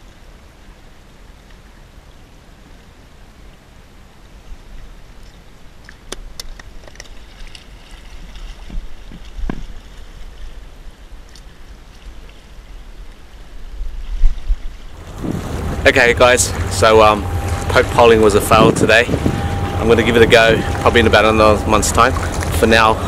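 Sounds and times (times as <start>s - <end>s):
wind rumbling on microphone: 3.6s - 23.0s
clicks and knocks of fishing pole: 5.2s - 9.9s
water washing among rocks: 14.2s - 23.0s.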